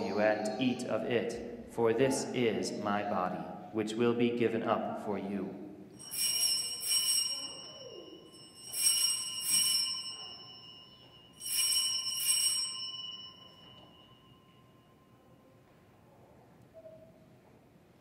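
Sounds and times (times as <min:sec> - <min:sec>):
altar bell ringing: 0:06.0 - 0:15.4.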